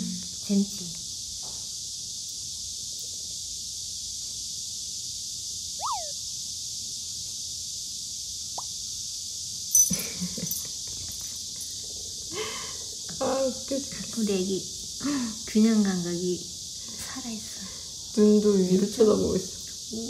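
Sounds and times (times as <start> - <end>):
high sliding squeak: 5.8 - 6.1.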